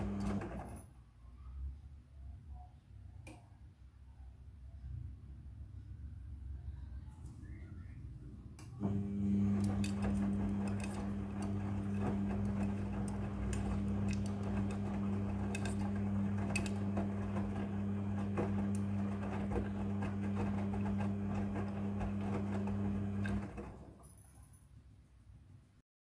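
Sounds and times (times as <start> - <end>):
washing machine motor hum: 0.0 - 0.8, 8.7 - 24.0.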